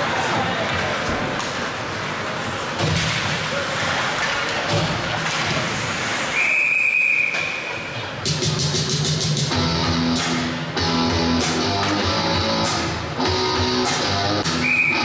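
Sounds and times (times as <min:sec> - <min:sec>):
spectators' voices: 0:00.0 - 0:08.6
referee's whistle blast: 0:14.6 - 0:15.0.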